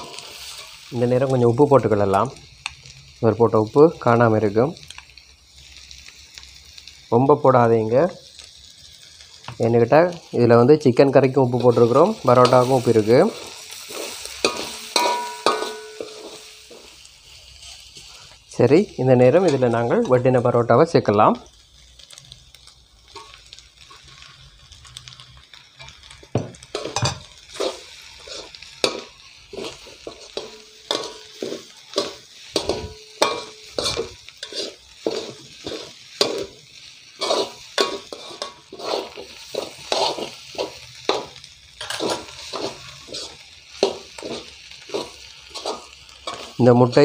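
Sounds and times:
metal spatulas scraping a pan: 0.0s - 0.9s, 11.0s - 18.2s, 19.2s - 20.4s, 26.7s - 36.6s, 37.2s - 47.0s
food sizzling in a wok: 0.0s - 47.0s.

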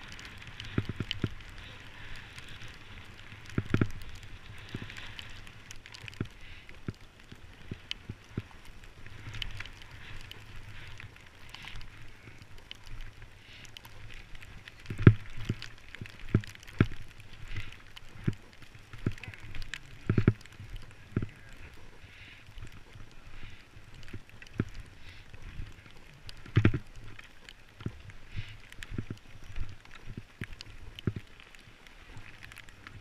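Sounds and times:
wind rumble on microphone: 0.0s - 21.9s
skis scraping on snow: 0.0s - 33.0s.

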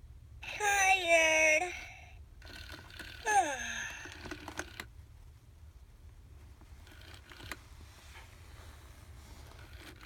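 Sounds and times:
talking doll electronic voice: 0.4s - 2.1s, 3.2s - 4.0s.

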